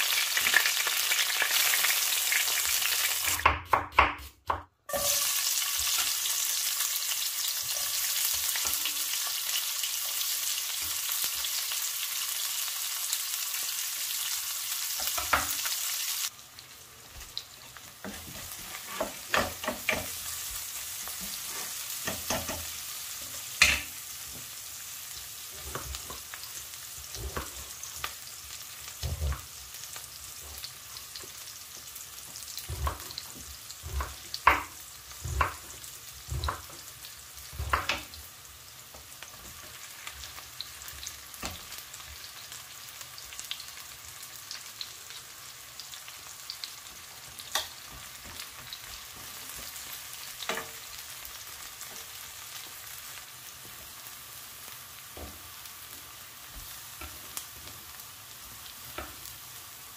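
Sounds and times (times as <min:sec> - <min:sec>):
onions sizzling in frying pan: 0:00.0 - 0:59.9
spatula tapping and scraping: 0:18.0 - 0:20.2, 0:21.1 - 0:22.7, 0:32.3 - 0:36.8.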